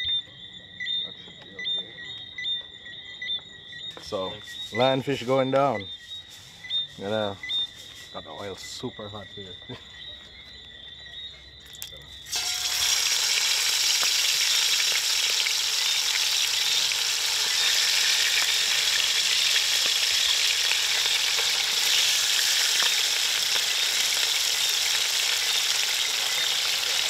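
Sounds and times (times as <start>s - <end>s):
fish sizzling in hot oil: 12.2s - 27.0s.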